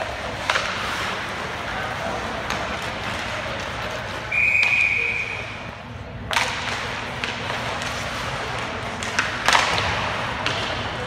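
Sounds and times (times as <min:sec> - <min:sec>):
ice rink noise: 0:00.0 - 0:11.0
referee's whistle: 0:04.3 - 0:05.6.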